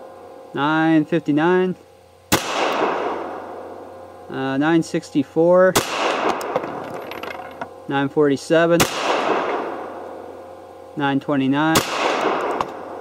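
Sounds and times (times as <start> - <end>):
pistol shots with echo: 2.3 - 3.4, 5.8 - 6.5, 8.8 - 9.8, 11.7 - 12.6.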